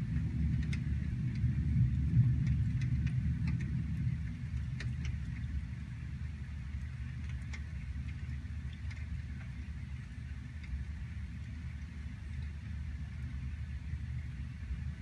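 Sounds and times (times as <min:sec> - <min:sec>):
deep thunder rumble: 0:00.0 - 0:08.1
rain: 0:00.0 - 0:15.0.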